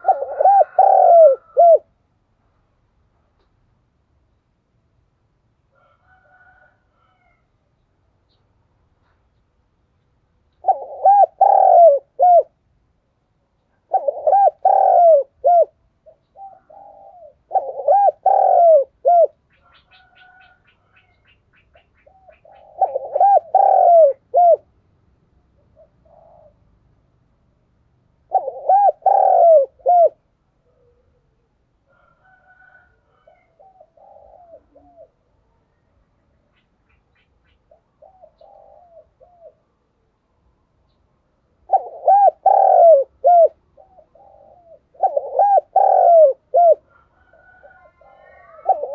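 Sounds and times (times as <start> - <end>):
dove cooing: 0.0 - 1.9, 10.5 - 12.6, 13.7 - 24.7, 25.6 - 26.7, 28.2 - 35.4, 36.5 - 39.7, 41.6 - 48.9.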